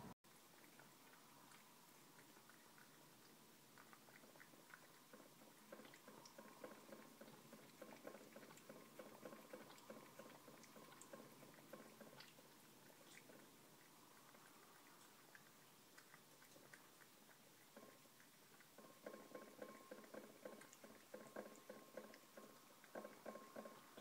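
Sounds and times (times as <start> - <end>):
cat lapping milk: 0.3 - 24.0.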